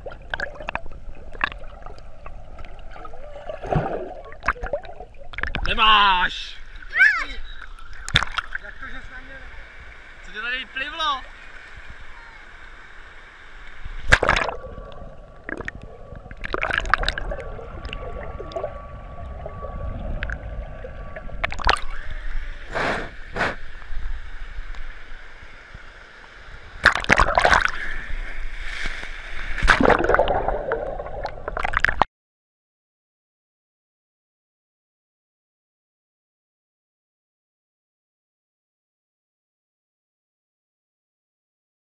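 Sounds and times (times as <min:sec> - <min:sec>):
pool water sloshing and gurgling: 0:00.0 - 0:32.0
water splashing: 0:00.0 - 0:32.0.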